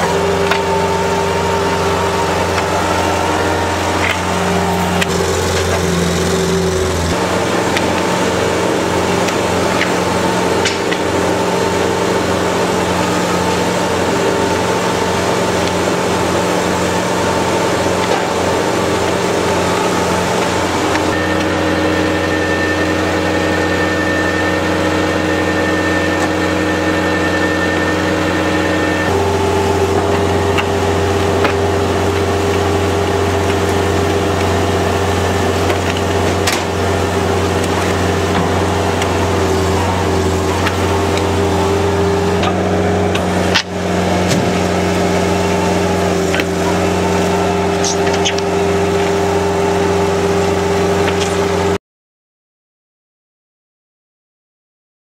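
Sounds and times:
loader engine running: 0.0 - 51.8.

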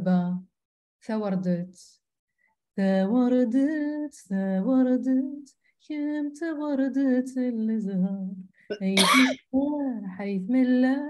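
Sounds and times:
woman singing unaccompanied: 2.8 - 11.0.

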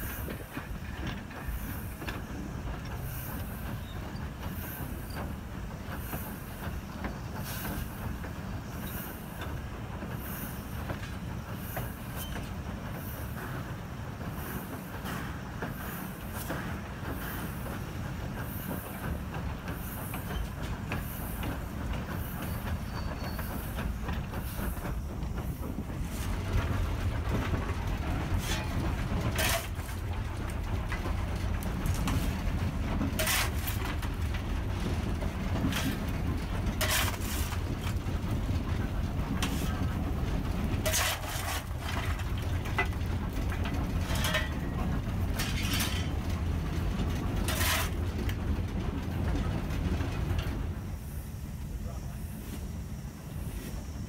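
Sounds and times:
steam locomotive chugging: 0.0 - 54.0
heavy rumble inside cab: 24.1 - 50.8
coal shovel scraping and clanking: 28.4 - 28.7, 29.3 - 30.0, 33.2 - 33.9, 35.7 - 36.0, 36.8 - 37.9, 39.4 - 39.7, 40.8 - 42.2, 44.0 - 44.8, 45.4 - 46.2, 47.5 - 48.0.

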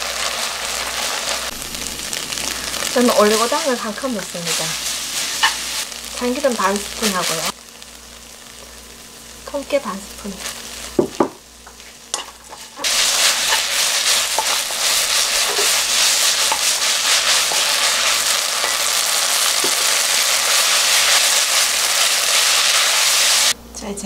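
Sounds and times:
food sizzling in a frying pan: 0.0 - 23.6
wooden spatula stirring: 11.7 - 19.0.

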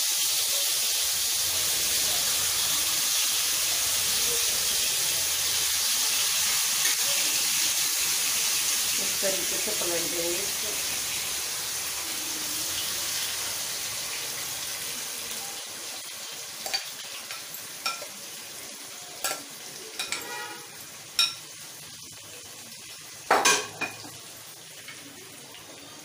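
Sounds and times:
chicken sizzling in hot oil: 0.0 - 26.0
spoon scraping a pan: 16.6 - 18.2, 19.2 - 21.5.

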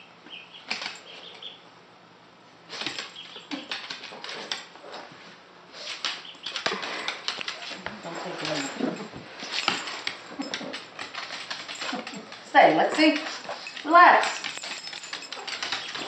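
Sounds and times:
duckling peeping: 0.3 - 1.6, 3.2 - 3.7, 6.2 - 6.6
dog claws clicking on wooden floor: 0.7 - 1.1, 2.8 - 4.9, 5.8 - 16.0.

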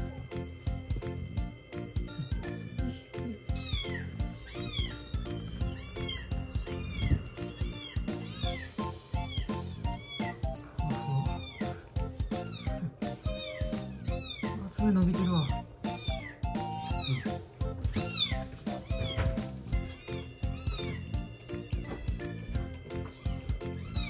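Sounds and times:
background music with steady beat: 0.0 - 24.0
kitten mewing: 2.1 - 21.1.

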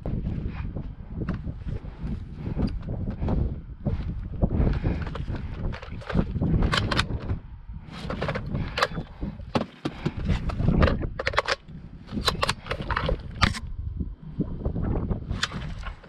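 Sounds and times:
airsoft rifle clicks and clacks: 4.6 - 7.4, 8.0 - 13.7.

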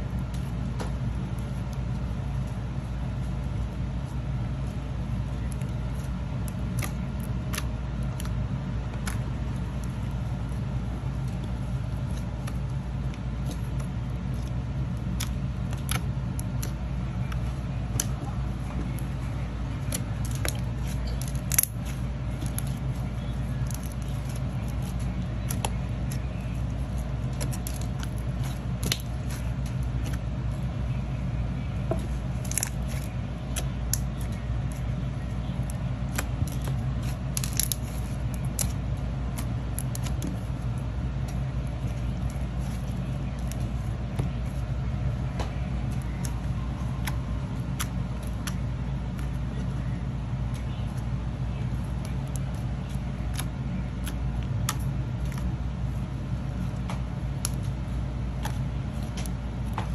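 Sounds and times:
low background hum: 0.0 - 59.9.

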